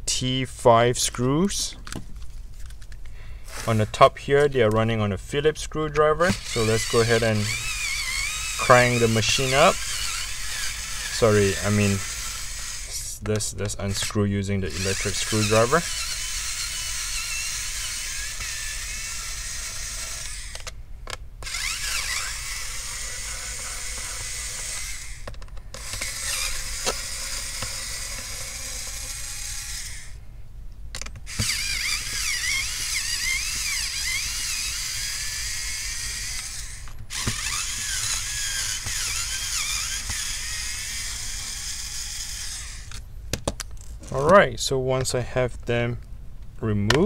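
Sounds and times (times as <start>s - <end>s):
electric screwdriver whirring: 6.3s - 13.0s, 13.9s - 30.2s, 31.0s - 43.0s.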